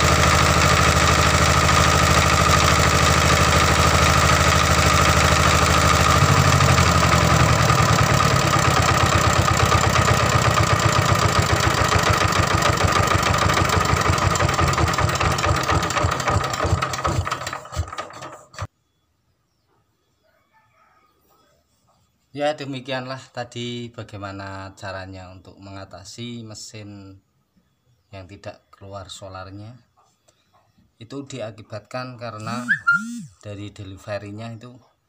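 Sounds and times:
diesel engine running: 0.0 - 18.7, 32.4 - 33.3.

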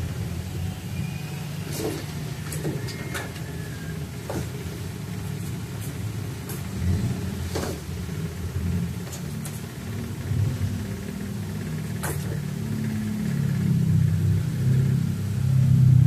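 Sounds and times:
low mechanical rumble: 0.0 - 16.0.

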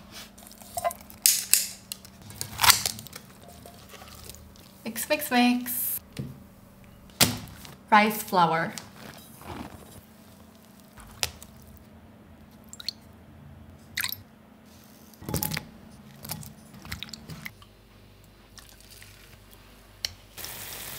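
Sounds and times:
wet squishing of batter stirred: 2.2 - 4.9, 8.8 - 11.9, 18.4 - 19.8.

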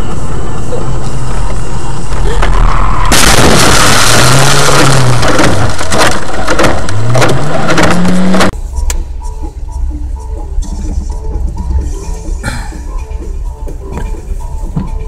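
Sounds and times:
crashing and rattling: 2.3 - 8.5
car crash impact: 3.0 - 8.5.

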